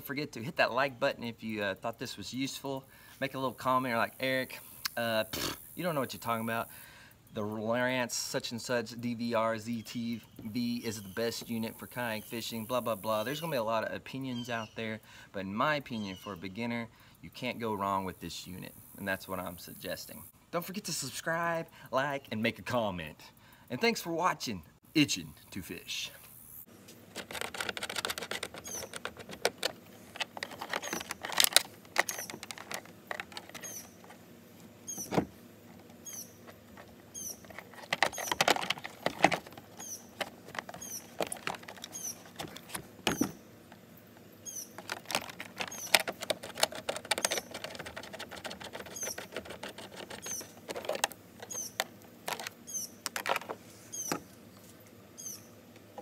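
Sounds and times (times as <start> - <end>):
plastic clicks and knocks: 27.1 - 33.8, 35.0 - 36.0, 36.8 - 43.4, 44.8 - 54.2
faint high chirp: 33.6 - 34.0, 36.0 - 36.4, 55.2 - 55.5.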